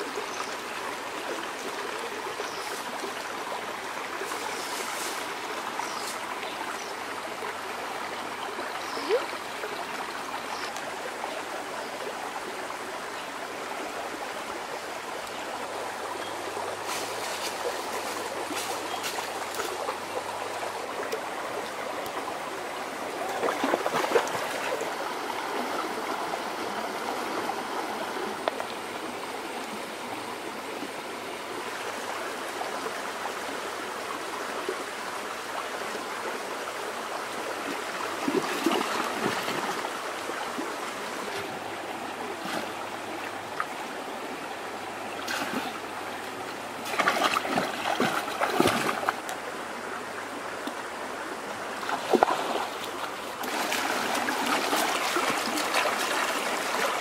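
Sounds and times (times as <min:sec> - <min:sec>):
stream trickling and babbling: 0:00.0 - 0:57.0
water splashing: 0:23.1 - 0:25.0, 0:38.1 - 0:39.9, 0:45.2 - 0:49.4, 0:51.8 - 0:57.0.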